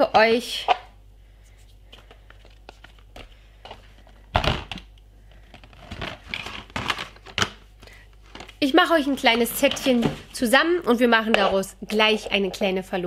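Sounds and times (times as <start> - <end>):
paper and packaging rustling: 1.8 - 10.5.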